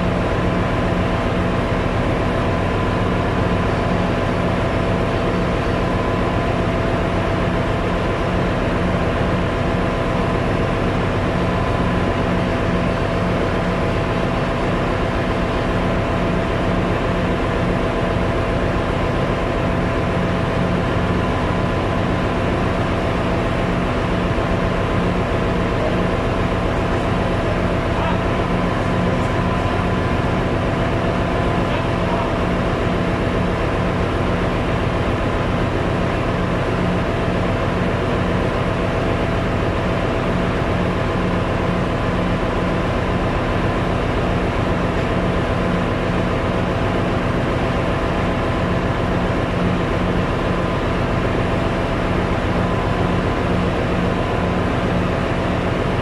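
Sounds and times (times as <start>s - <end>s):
engine room machinery droning: 0.0s - 56.0s.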